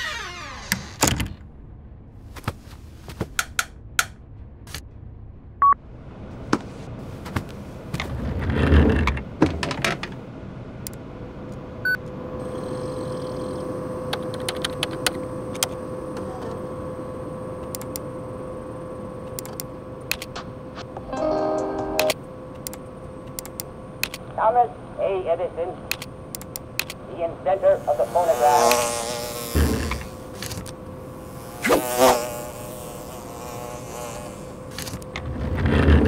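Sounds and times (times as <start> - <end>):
steady hum: 0.0 - 36.0
faint high whine: 10.8 - 35.3.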